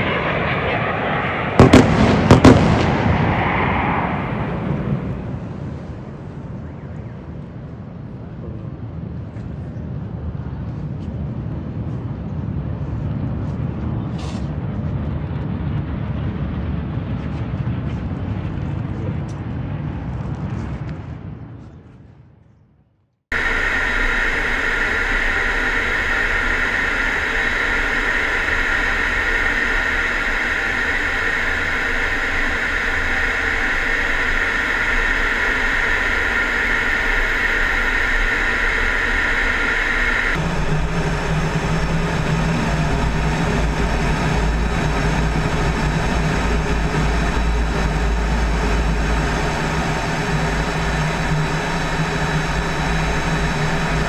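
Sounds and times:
fighter jet cockpit noise: 23.3s - 54.0s
rushing air with high hiss: 23.3s - 54.0s.

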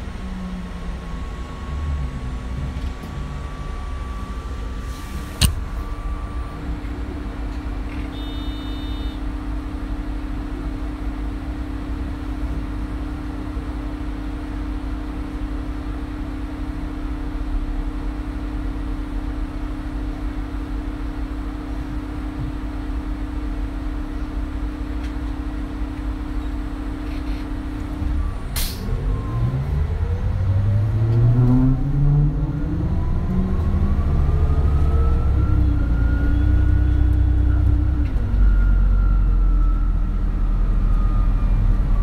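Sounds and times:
bus engine rumble: 0.0s - 42.0s
sharp click: 5.4s - 5.6s
short electronic beep: 8.0s - 9.2s.

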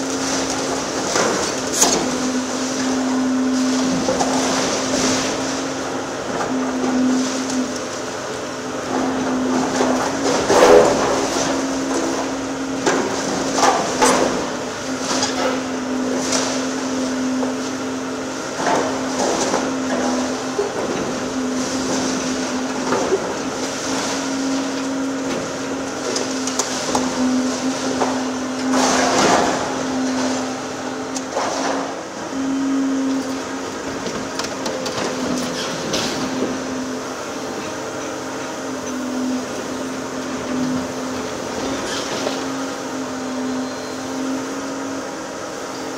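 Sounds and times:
excavator engine humming: 0.0s - 45.9s
debris cracking and falling: 18.6s - 30.4s.

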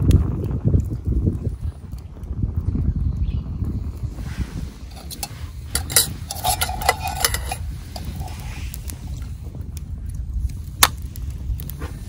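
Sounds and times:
steady low rumble: 3.4s - 12.0s
metal cookware clinking: 4.9s - 8.4s.

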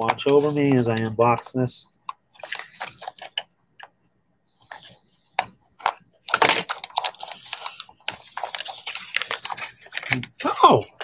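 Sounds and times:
packaging clicks and rustles: 2.1s - 3.9s, 4.6s - 11.0s
wrapping crinkling: 2.4s - 3.5s, 5.8s - 10.6s.

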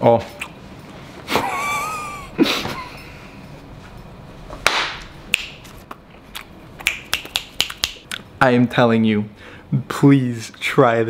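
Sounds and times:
finger snaps: 6.3s - 8.2s
breathy exhale: 9.4s - 9.7s.

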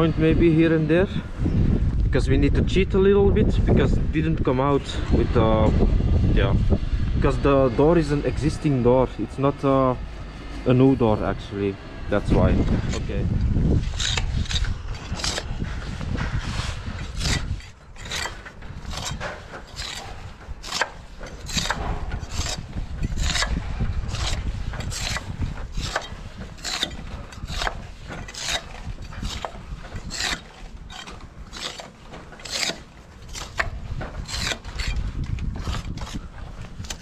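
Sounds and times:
tool scraping mortar joints: 12.1s - 37.0s.

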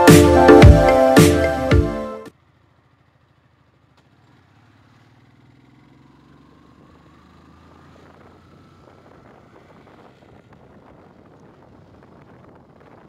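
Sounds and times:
motorcycle engine accelerating: 0.0s - 13.0s
wind noise on microphone: 8.8s - 13.0s.

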